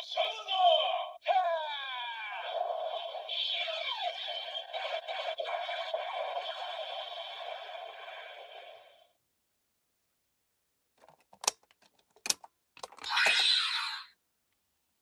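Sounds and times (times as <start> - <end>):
plastic clicks: 11.0 - 13.4.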